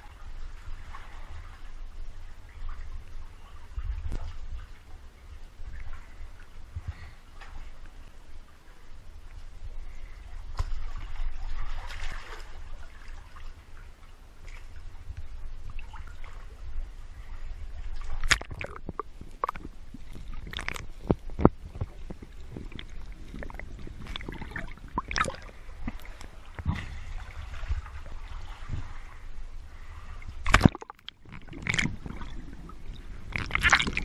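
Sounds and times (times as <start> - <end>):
water sloshing and gurgling: 0.0 - 34.0
sharp water splashes: 18.0 - 20.9, 23.4 - 27.4, 30.2 - 34.0.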